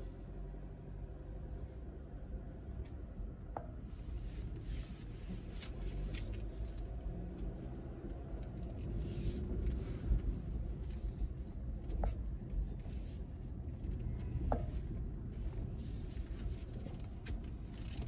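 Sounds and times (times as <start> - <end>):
faint clicks and rustles: 3.6 - 18.0
car cabin rumble: 8.1 - 18.0.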